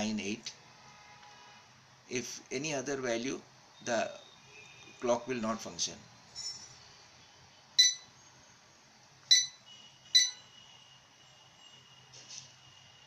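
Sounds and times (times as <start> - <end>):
short electronic beeps: 7.8 - 8.2, 9.3 - 10.6.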